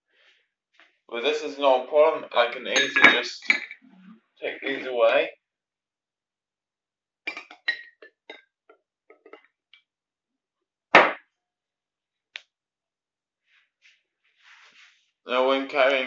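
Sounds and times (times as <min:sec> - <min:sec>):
drinking glasses clinking: 0:02.7 - 0:03.8.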